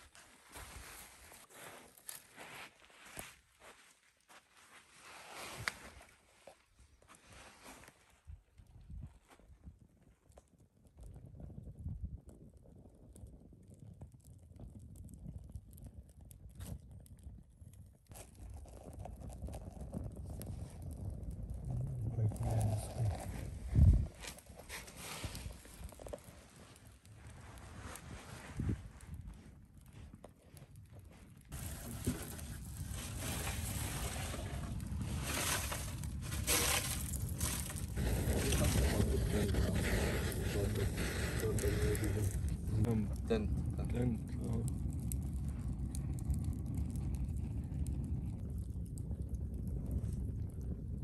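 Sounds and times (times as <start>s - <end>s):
fire crackling and popping: 0.0s - 4.8s, 7.8s - 51.0s
campfire burning: 0.0s - 51.0s
rushing of flames: 10.3s - 51.0s.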